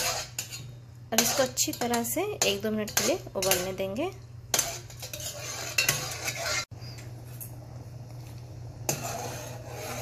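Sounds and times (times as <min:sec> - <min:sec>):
metal spoon scraping saucepan: 0:00.0 - 0:06.7, 0:08.8 - 0:10.0
pot simmering: 0:00.0 - 0:10.0.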